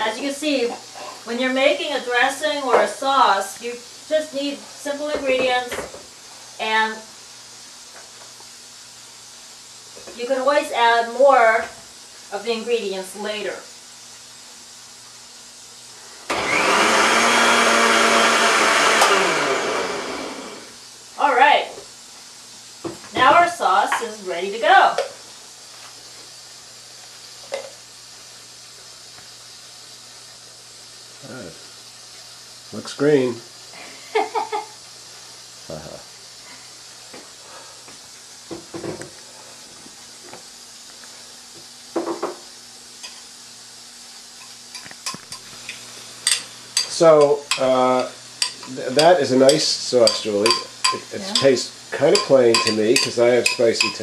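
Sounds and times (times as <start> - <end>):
electric blender running: 16.3 - 20.9, 51.0 - 53.4
steady low hiss: 17.1 - 54.0
utensils clattering against dish: 48.4 - 51.5, 52.1 - 54.0.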